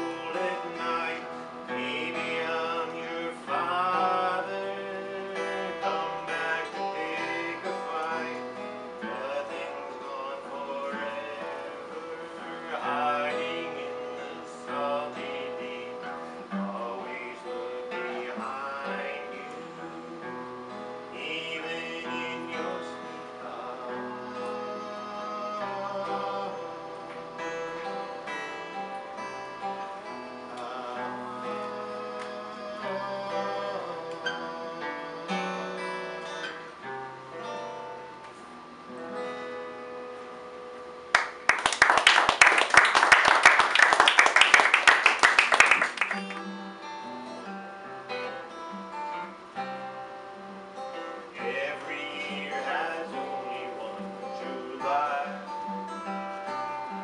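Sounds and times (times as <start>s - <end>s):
fast guitar strumming: 0.0s - 38.2s, 38.9s - 57.0s
acoustic guitar picking: 0.0s - 57.0s.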